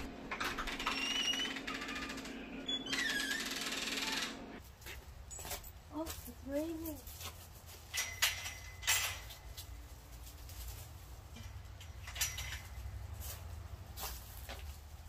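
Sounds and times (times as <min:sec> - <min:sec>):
metal gate latch clanking: 0:08.0 - 0:09.4, 0:11.4 - 0:12.8.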